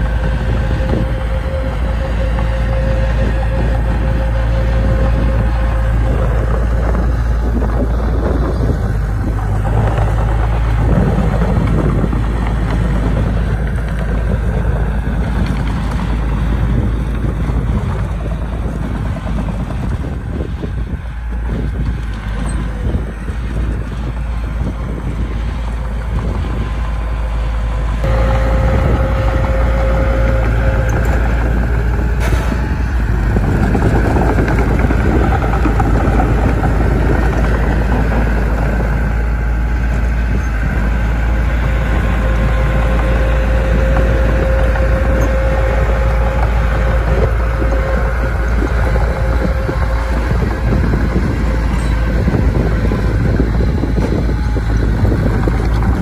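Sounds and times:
heavy machinery diesel engine: 0.0 - 56.0
high whine: 0.0 - 56.0.

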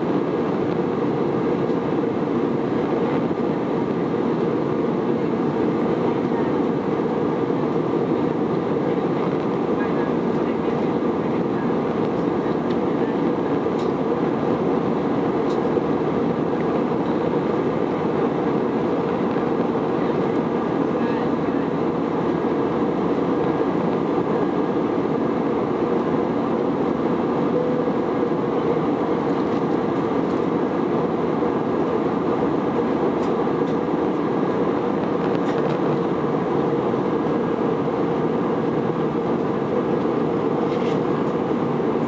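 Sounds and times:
airplane cabin engine drone: 0.0 - 42.0
constant low hum: 0.0 - 42.0.

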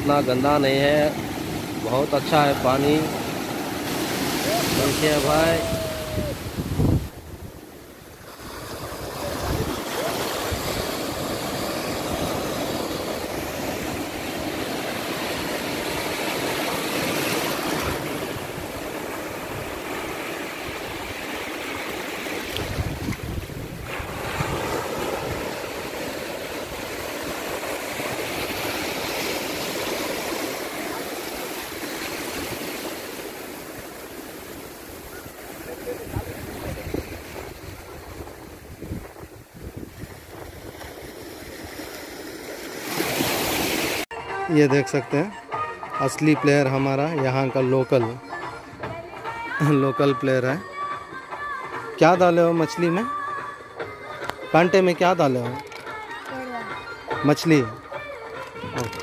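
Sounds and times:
foam washing up sand: 0.0 - 6.9, 8.1 - 39.0
surf breaking on beach: 0.0 - 44.1.

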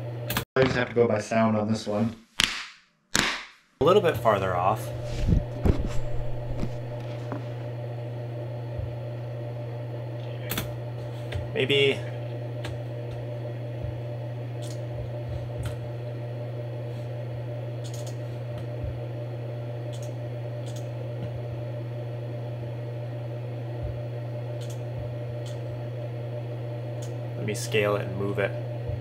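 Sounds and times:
steady low hum: 3.8 - 29.0
computer mouse clicks: 14.6 - 14.8, 17.8 - 18.2, 19.9 - 20.9, 24.6 - 24.8.

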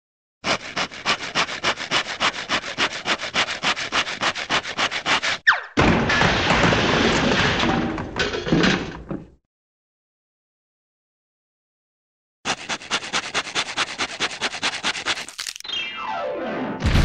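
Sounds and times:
cartoon hand saw rasping: 0.4 - 5.5, 12.5 - 15.6
cartoon falling whistle: 5.4 - 5.8
crash of clattering debris: 5.8 - 9.2.

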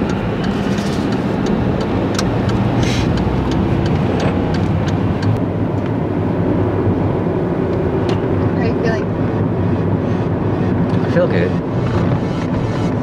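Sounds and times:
light ticks: 0.0 - 5.9
car engine and tyre rumble: 0.0 - 13.0.

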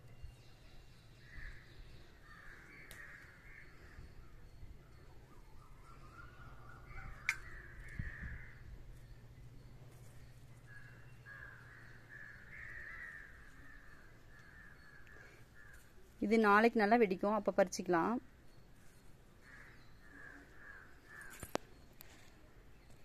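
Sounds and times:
crows cawing: 1.3 - 4.0, 6.4 - 8.7, 10.7 - 16.0, 19.4 - 21.6.

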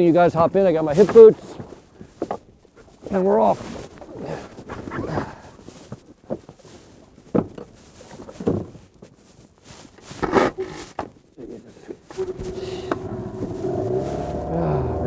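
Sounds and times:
outboard motor running: 12.1 - 15.0.

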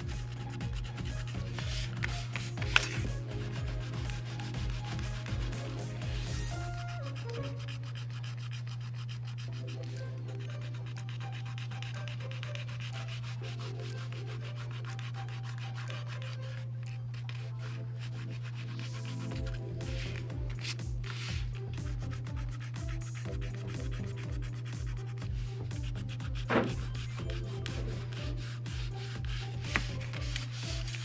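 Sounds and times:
tool scratching scratchboard: 25.8 - 31.0.

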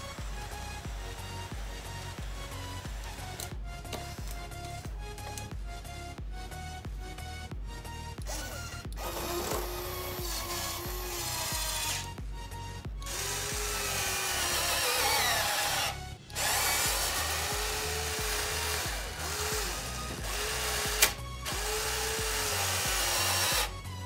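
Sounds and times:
small electric motors whirring: 8.2 - 12.2, 13.0 - 23.8.

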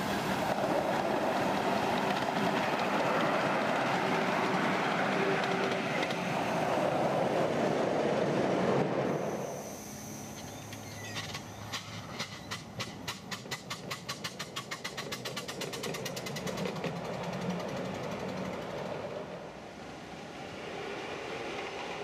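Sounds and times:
wheels clicking over rail joints: 0.0 - 9.0, 10.3 - 19.5
miniature train running noise: 9.6 - 19.2.

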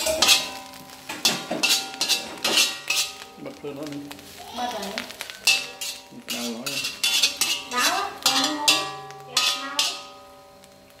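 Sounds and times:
cutlery clinking against dishes: 0.0 - 3.2.

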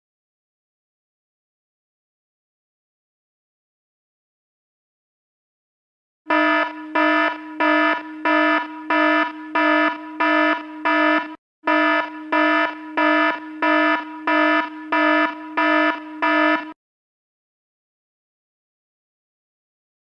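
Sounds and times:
electronic alarm beeping: 6.3 - 16.8.

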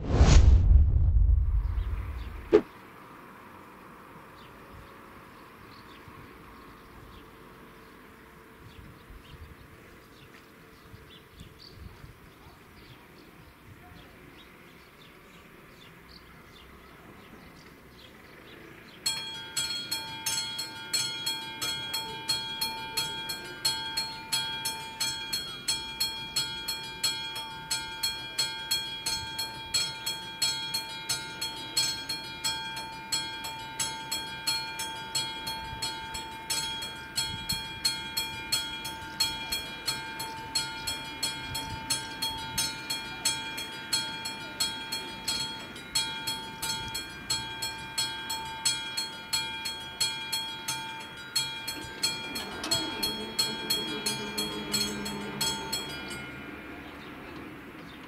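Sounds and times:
level-crossing warning bell: 18.8 - 57.7.

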